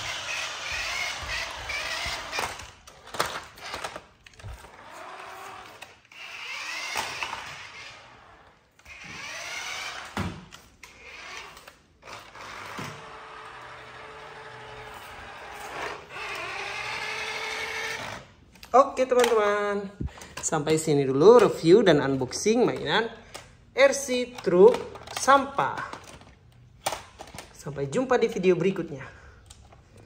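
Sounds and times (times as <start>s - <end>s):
toy electric motor whining: 0.0s - 18.4s.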